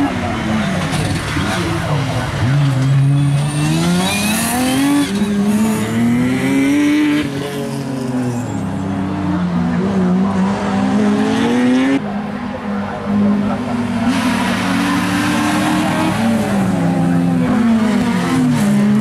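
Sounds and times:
car engine revving hard: 0.2 - 8.1, 13.3 - 19.0.

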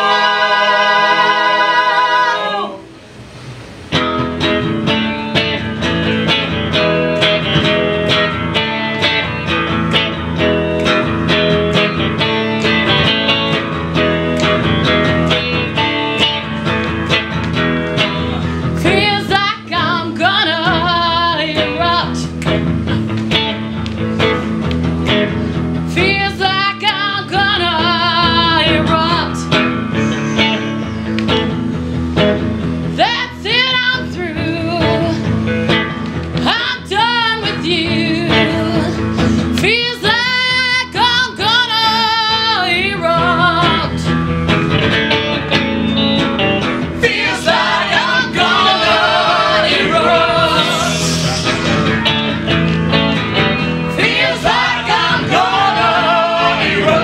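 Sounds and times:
voices singing: 0.0 - 3.0, 46.9 - 52.3, 53.9 - 57.0
instrumental accompaniment: 3.9 - 19.2, 27.7 - 33.0, 43.9 - 57.0.

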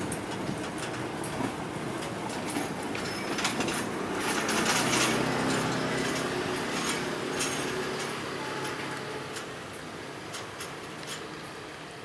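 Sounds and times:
train wheels rushing on rails: 0.0 - 12.0.

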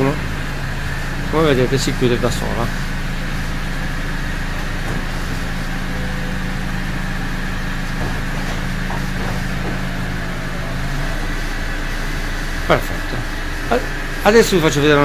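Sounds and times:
car engine idling: 0.0 - 15.0
hydraulic pump humming: 0.0 - 15.0.

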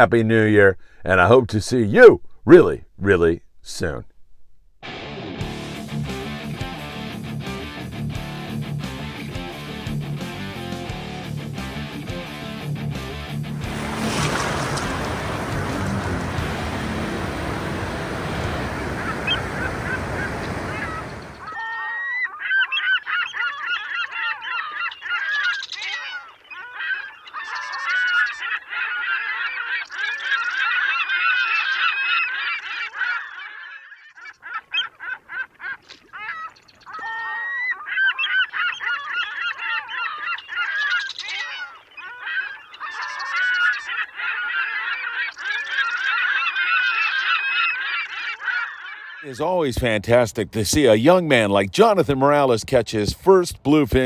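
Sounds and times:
steady noise: 13.6 - 21.4
flock of birds calling: 13.6 - 49.7.

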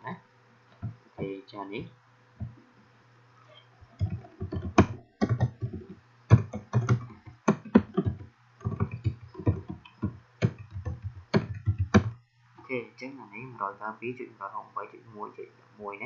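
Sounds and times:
keyboard typing: 3.8 - 12.2.

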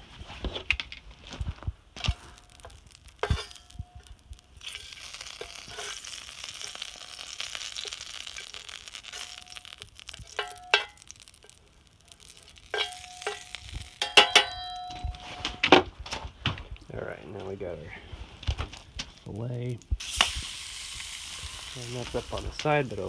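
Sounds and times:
oil sizzling in a skillet: 2.0 - 14.4, 19.8 - 23.0
metal spatula scraping: 2.0 - 15.6.

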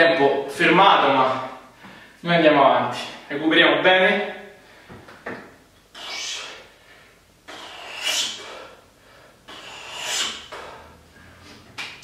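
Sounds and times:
man breathing deeply: 5.9 - 11.7.

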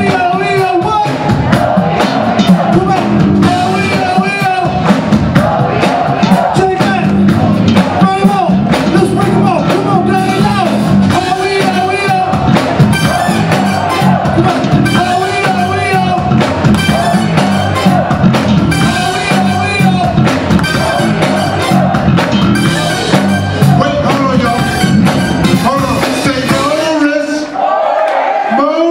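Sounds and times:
lead vocal singing: 0.0 - 25.0
electric bass: 0.0 - 26.8
drum kit: 0.0 - 27.2
keyboards: 0.0 - 27.5.

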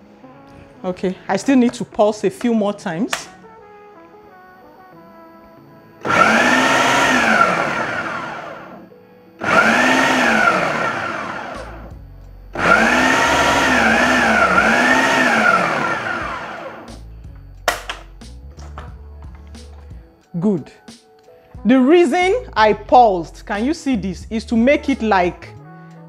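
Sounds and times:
food processor motor pulsing: 6.0 - 8.8, 9.4 - 17.0.

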